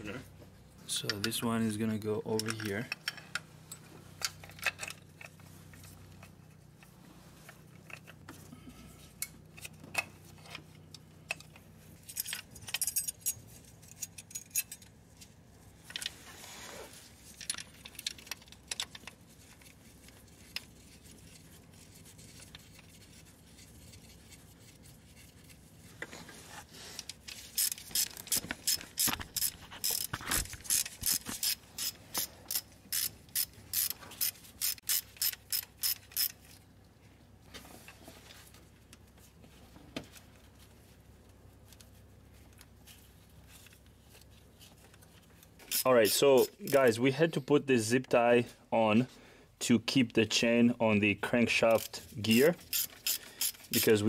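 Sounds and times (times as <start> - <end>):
metal parts clinking and rustling: 2.3 - 6.4, 11.3 - 16.2, 17.2 - 25.5, 27.0 - 36.7, 51.6 - 54.0
ratchet wrench clicking: 27.3 - 36.4, 45.7 - 46.8, 52.6 - 53.9.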